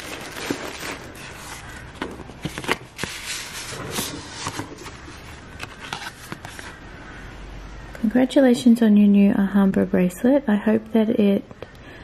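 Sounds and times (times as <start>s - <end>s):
paper envelope rustling: 0.0s - 6.8s.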